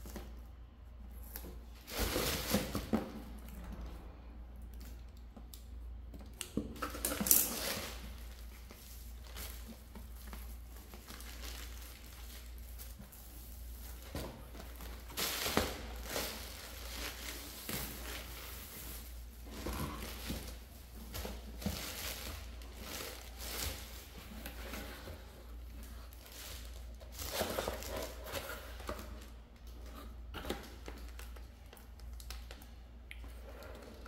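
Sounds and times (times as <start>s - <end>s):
plastic packaging crinkling: 6.9s - 24.2s.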